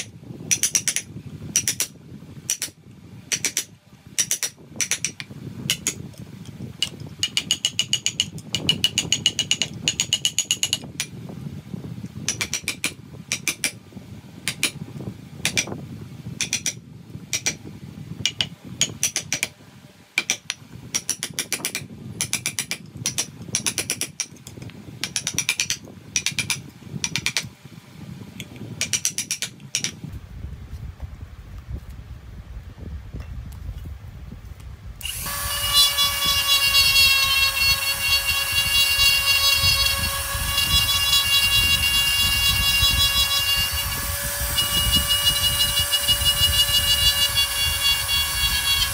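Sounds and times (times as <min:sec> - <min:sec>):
mallet striking chisel into wood: 0:00.5 - 0:01.9, 0:03.3 - 0:06.0, 0:12.3 - 0:13.8, 0:16.4 - 0:17.6, 0:18.3 - 0:19.5, 0:20.2 - 0:24.3, 0:25.0 - 0:27.5, 0:28.8 - 0:30.0.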